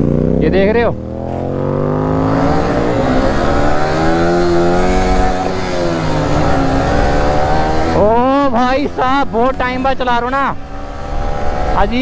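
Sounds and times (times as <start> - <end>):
motorcycle engine revving: 0.0 - 12.0.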